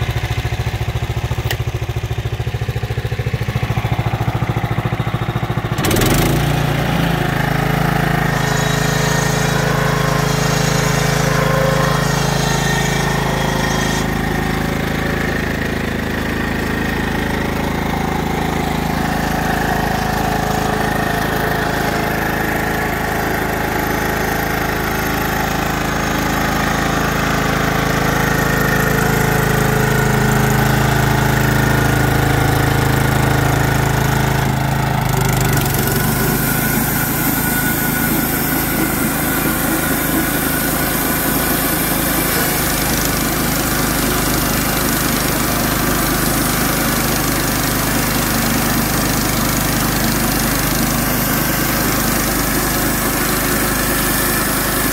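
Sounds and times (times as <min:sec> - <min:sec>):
sawmill engine running: 0:00.0 - 0:54.9
band blade sawing log: 0:05.8 - 0:15.4, 0:35.1 - 0:47.0.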